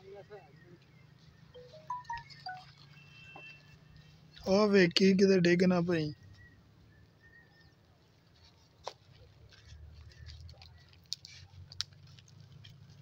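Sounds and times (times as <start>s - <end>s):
dry twigs crackling and rustling: 8.4s - 13.0s
twigs snapping: 10.0s - 12.8s.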